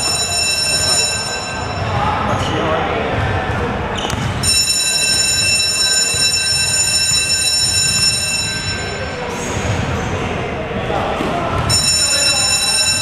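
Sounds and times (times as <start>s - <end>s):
shrill scoreboard buzzer: 0.0s - 2.0s, 4.4s - 9.3s, 11.7s - 13.0s.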